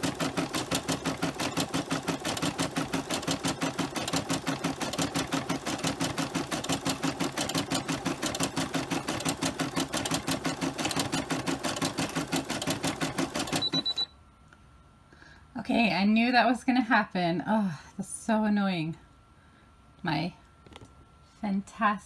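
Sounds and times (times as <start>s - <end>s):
embroidery machine stitching: 0.0s - 14.0s.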